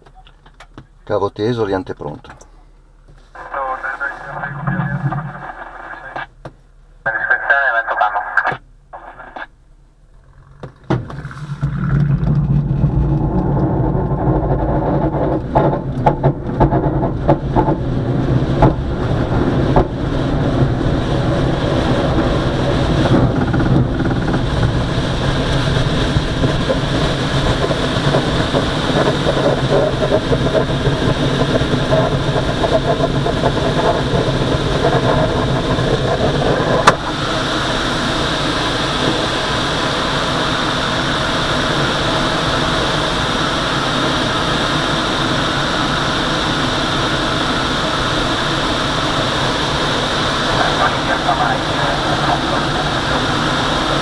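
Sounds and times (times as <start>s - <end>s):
plane engine running: 1.9s - 54.0s
glider rolling on runway: 3.1s - 6.3s, 10.1s - 54.0s
rushing air: 11.1s - 54.0s.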